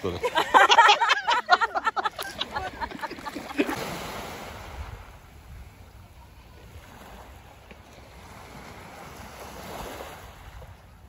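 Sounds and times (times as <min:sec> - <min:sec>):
women laughing and chattering: 0:00.0 - 0:04.1
small waves on pebble shore: 0:02.3 - 0:11.0.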